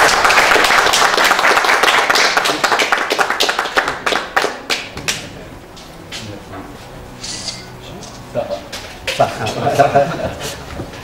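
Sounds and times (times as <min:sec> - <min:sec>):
hand clapping: 0:00.0 - 0:05.3.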